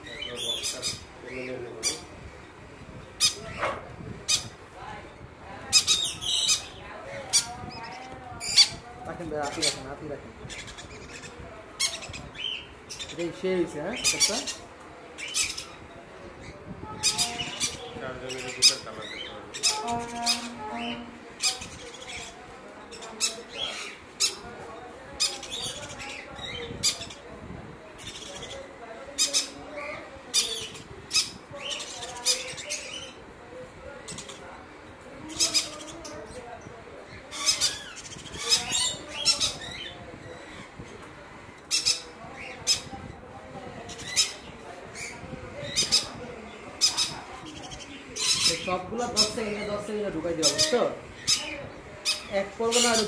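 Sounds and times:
parrots squawking: 0.2 - 2.1, 3.2 - 4.6, 5.7 - 8.8, 10.5 - 15.8, 16.9 - 24.4, 35.3 - 36.2, 37.2 - 40.7, 41.6 - 42.9, 43.9 - 49.7, 50.4 - 53.0.

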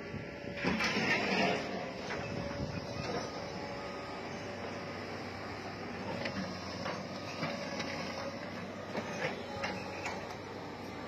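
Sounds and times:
excavators running: 0.0 - 11.0
clanks of debris being moved: 0.6 - 2.2.

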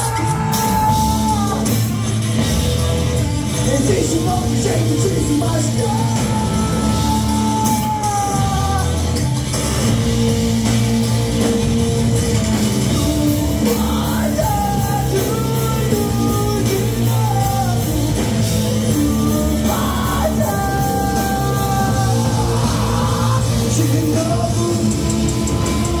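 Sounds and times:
rock band playing live: 0.0 - 26.0
person singing long notes: 5.6 - 9.2, 13.6 - 26.0.

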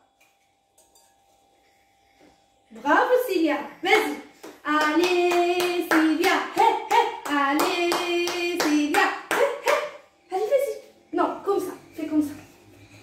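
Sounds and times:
hands clapping a beat: 4.4 - 9.8.

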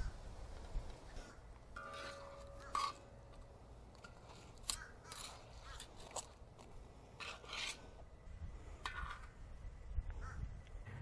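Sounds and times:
metal tongs scraping steel pan: 1.8 - 3.4.

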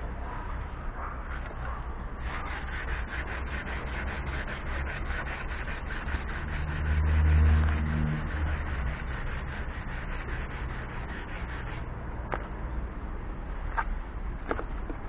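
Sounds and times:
sandpaper rubbing car paint: 1.2 - 12.0.

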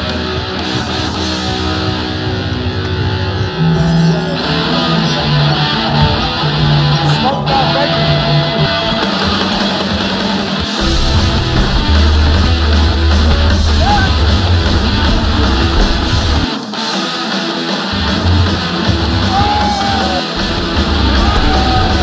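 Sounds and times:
rock music with guitar and bass: 0.0 - 22.0
person singing: 3.5 - 16.1.

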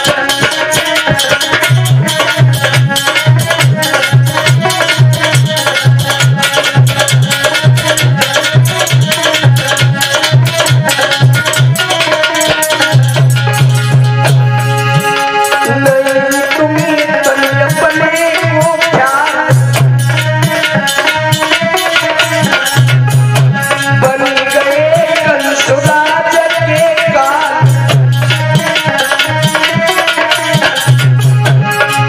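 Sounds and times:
dholak drum strokes: 0.0 - 32.0
harmonium melody: 0.0 - 32.0
jingling percussion: 0.0 - 32.0
man singing: 15.5 - 21.1, 23.7 - 30.8.

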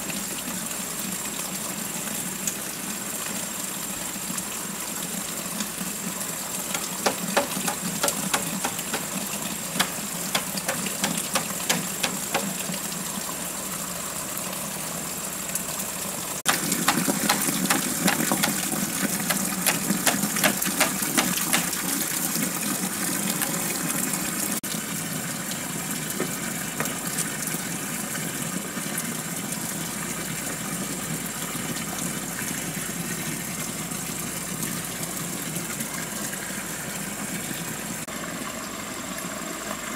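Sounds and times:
water splashing into bamboo tub: 6.5 - 13.0, 16.5 - 25.0
sharp irregular knocks: 6.7 - 9.2, 9.8 - 12.6, 16.5 - 18.6, 19.3 - 21.8.

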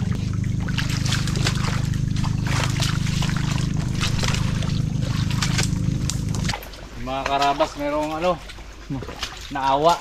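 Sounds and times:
footsteps squelching through mud: 0.0 - 10.0
steady low hum: 0.0 - 10.0.

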